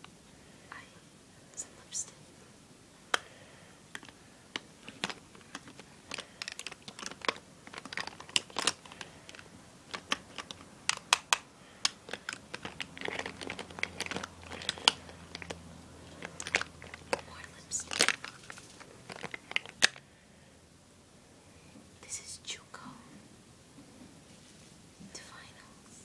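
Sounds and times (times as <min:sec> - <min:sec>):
plastic cosmetic cases clacking: 0:03.9 - 0:20.0
bag rustling: 0:12.0 - 0:17.2, 0:17.8 - 0:19.8.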